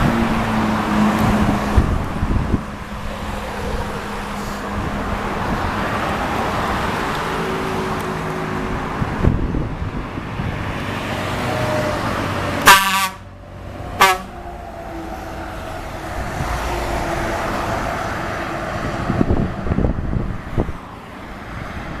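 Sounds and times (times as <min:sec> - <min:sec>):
passing road traffic: 0:00.0 - 0:22.0
truck air horn blasts: 0:12.6 - 0:13.3, 0:14.0 - 0:14.5.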